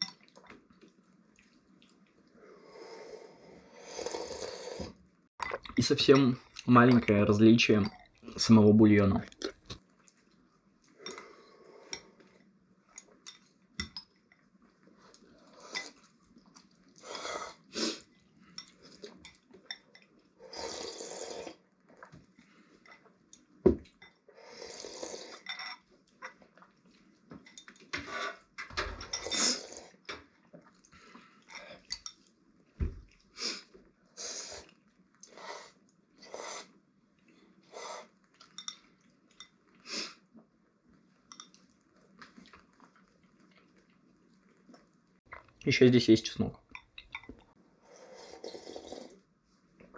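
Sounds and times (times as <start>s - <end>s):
people slurping noodles: 2.4s - 5.0s, 20.4s - 21.6s, 24.3s - 25.5s, 29.2s - 30.0s, 47.8s - 49.2s.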